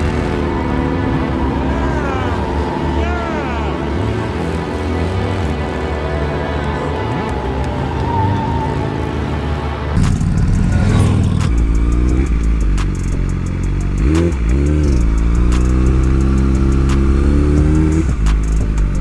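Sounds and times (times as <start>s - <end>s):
motorcycle engine running: 10.0s - 19.0s.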